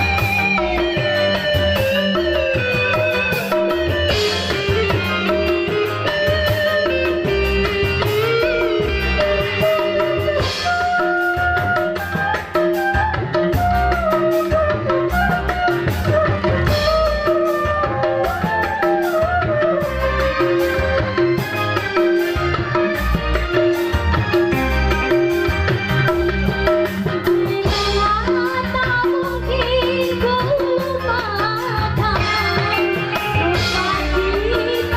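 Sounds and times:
bamboo flute: 0.0s - 21.6s
drum and hand-drum beat: 0.0s - 34.9s
electric guitar: 0.0s - 34.9s
keyboard melody: 0.0s - 34.9s.

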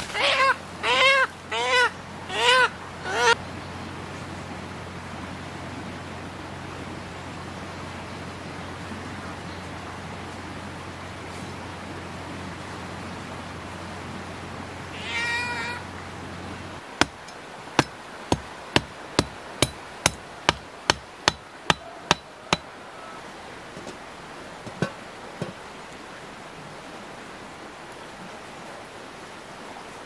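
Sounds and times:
cleaver chopping wood: 17.0s - 22.7s.

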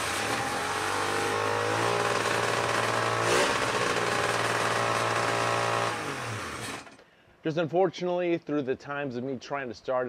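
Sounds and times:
two-stroke watercraft engine running: 0.0s - 7.0s.

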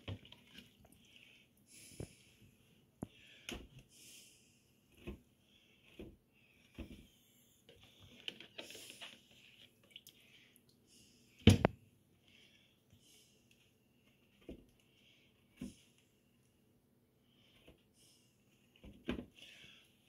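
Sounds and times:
wet sponges squishing into cups: 0.0s - 4.1s, 4.7s - 10.9s.

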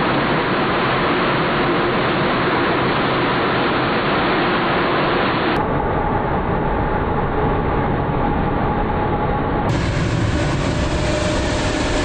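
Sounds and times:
steady engine whine: 5.0s - 12.0s
jet engines roaring: 9.7s - 12.0s.

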